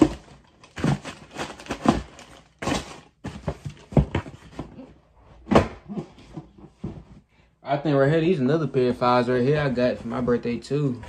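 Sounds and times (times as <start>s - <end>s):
boxes knocking and thudding: 0.0s - 7.2s
cardboard rustling: 0.0s - 7.2s.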